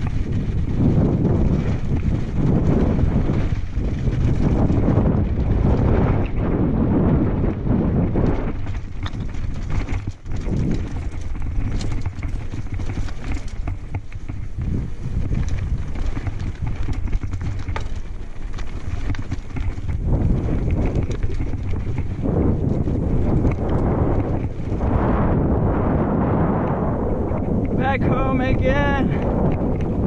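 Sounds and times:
bike knocks and rattles: 0:00.0 - 0:24.9
wind on microphone: 0:00.0 - 0:30.0
tyres crunching over stones: 0:08.3 - 0:24.8.

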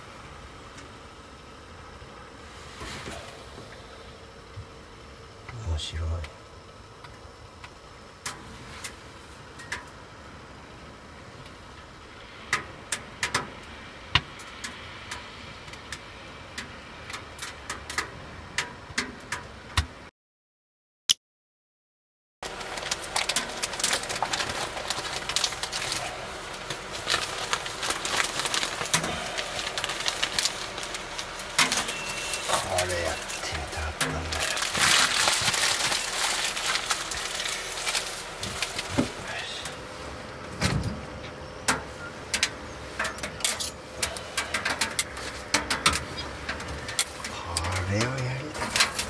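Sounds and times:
plastic bag crinkling: 0:22.4 - 0:39.7, 0:47.1 - 0:49.0.

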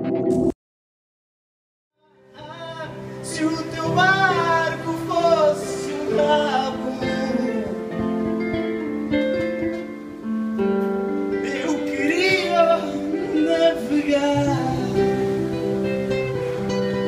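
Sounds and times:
man singing: 0:02.0 - 0:08.4, 0:11.3 - 0:15.7
acoustic guitar: 0:02.2 - 0:17.0.

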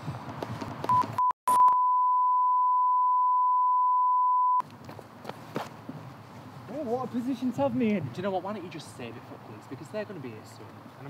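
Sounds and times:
censor bleep tone: 0:00.9 - 0:04.6.

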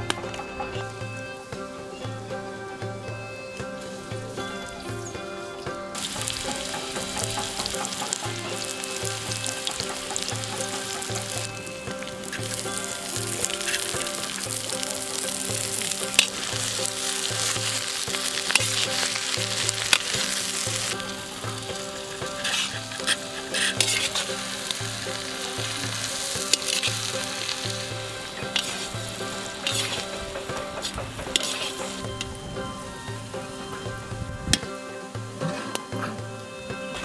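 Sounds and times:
onions sizzling in hot oil: 0:00.0 - 0:37.0
metal spatula scraping a wok: 0:06.0 - 0:32.1.

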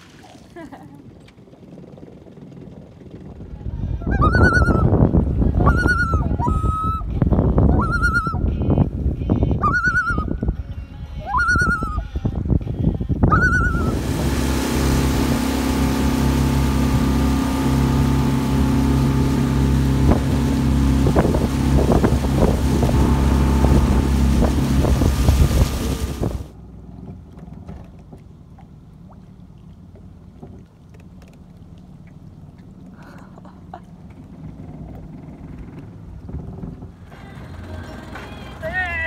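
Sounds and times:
rushing water: 0:00.0 - 0:00.9, 0:13.3 - 0:39.0
outboard motor running: 0:00.0 - 0:09.8, 0:12.1 - 0:39.0
wind: 0:00.0 - 0:39.0
loon wavering call: 0:04.1 - 0:04.9, 0:05.6 - 0:07.1, 0:07.7 - 0:08.5, 0:09.6 - 0:10.4, 0:11.2 - 0:12.0, 0:13.3 - 0:14.0.

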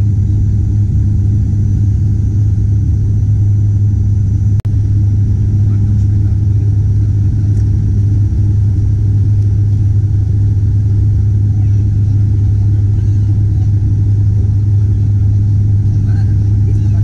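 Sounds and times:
turboprop engine drone in cabin: 0:00.0 - 0:17.0.

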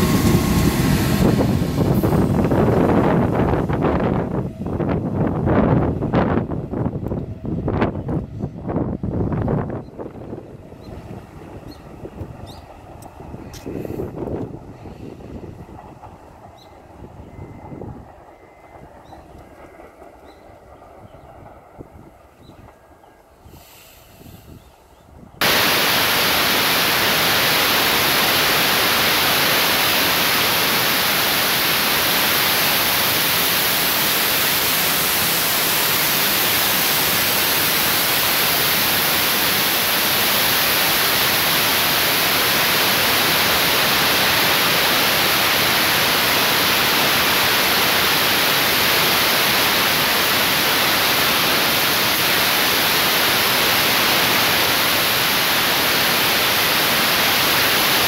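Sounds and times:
loud static hiss: 0:25.4 - 0:58.0.

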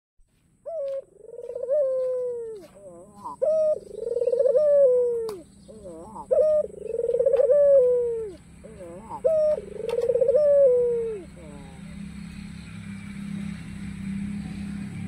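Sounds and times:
dove cooing: 0:00.6 - 0:12.2.

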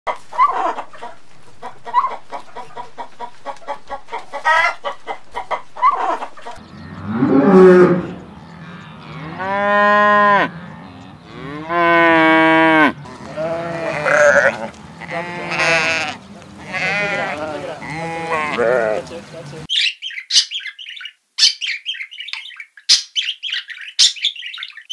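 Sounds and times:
hen clucking: 0:00.1 - 0:19.7
cattle mooing: 0:06.6 - 0:19.2
sheep bleating: 0:06.9 - 0:19.2.

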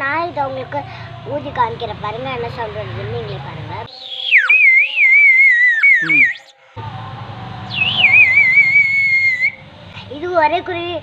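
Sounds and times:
clay bird whistle warbling: 0:03.9 - 0:06.6, 0:07.7 - 0:09.6.

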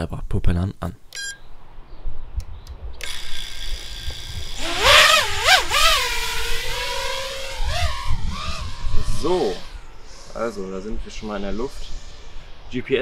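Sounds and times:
drone motors whining: 0:03.0 - 0:12.6
low wind rumble on microphone: 0:06.1 - 0:13.0.

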